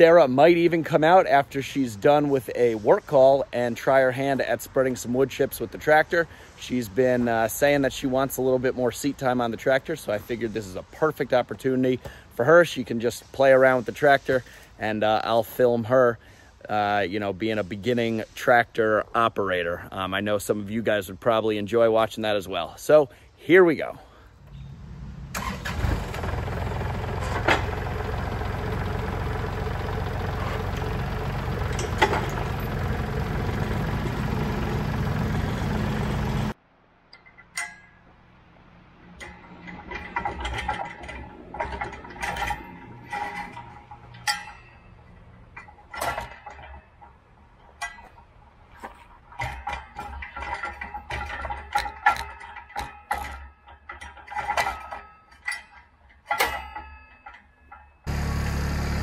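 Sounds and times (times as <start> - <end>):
tractor diesel engine running: 25.3 - 36.6, 58.1 - 59.0
metal clinks and knocks: 26.9 - 38.2, 39.2 - 58.1.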